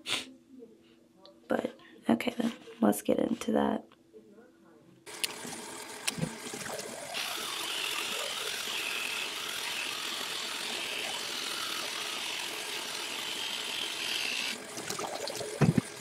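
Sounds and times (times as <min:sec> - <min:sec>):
water running from sink tap: 0:14.7 - 0:15.9.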